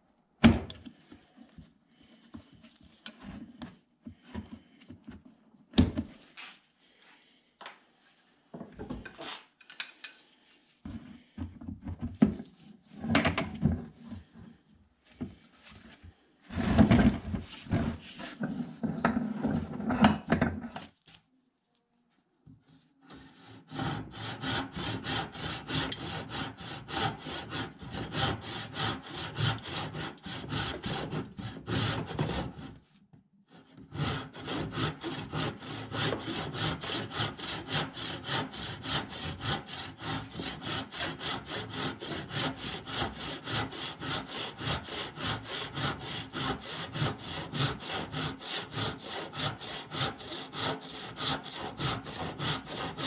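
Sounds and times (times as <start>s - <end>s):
hand saw cutting wood: 23.1s - 32.8s, 33.5s - 53.0s.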